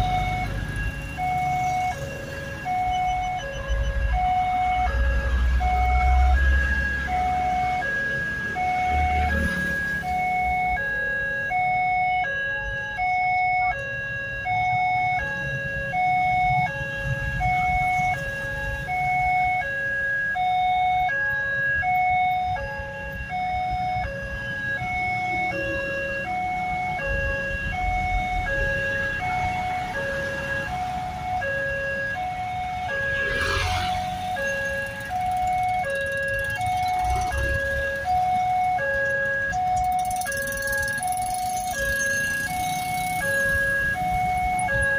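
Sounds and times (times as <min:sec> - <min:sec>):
motorcycle and truck engines rumbling: 0:00.0 - 0:44.9.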